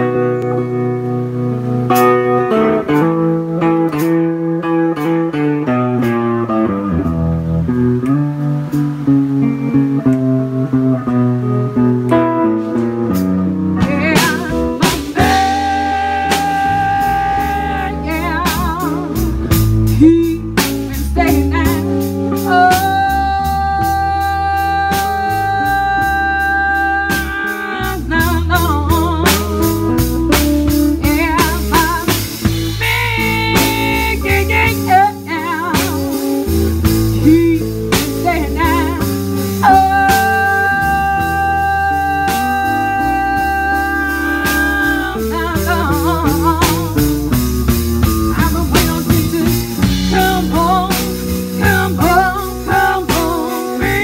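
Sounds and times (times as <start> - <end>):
blues band playing: 0.0 - 54.0
woman singing long notes: 13.8 - 29.5, 31.0 - 36.2, 37.2 - 47.2, 48.3 - 54.0.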